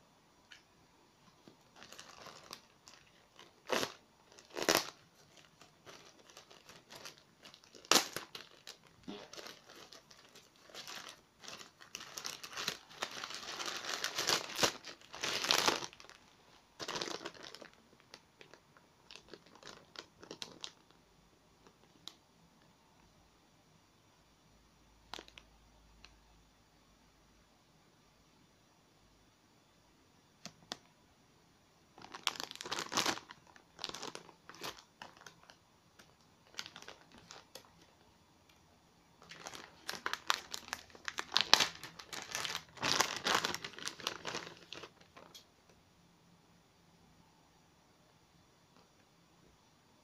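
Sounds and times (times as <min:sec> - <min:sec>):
plastic bag crinkling and rustling: 0:00.5 - 0:21.0, 0:25.1 - 0:26.1, 0:32.0 - 0:38.6, 0:39.2 - 0:45.7
plastic pouch crackling: 0:01.3 - 0:21.0, 0:25.1 - 0:26.1, 0:32.0 - 0:38.6, 0:39.2 - 0:45.7
plastic tearing: 0:01.4 - 0:16.2, 0:16.8 - 0:20.9, 0:32.0 - 0:38.0, 0:39.2 - 0:45.4.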